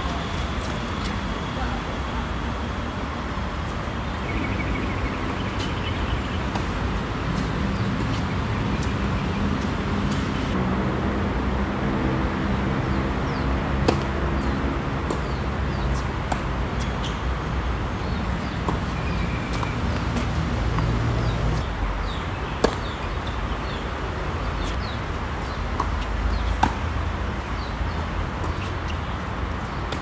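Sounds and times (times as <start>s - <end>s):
low rumble of city traffic: 0.0s - 30.0s
tennis ball hits and bounces: 13.8s - 17.2s, 18.1s - 21.4s, 22.6s - 23.0s, 25.4s - 26.9s.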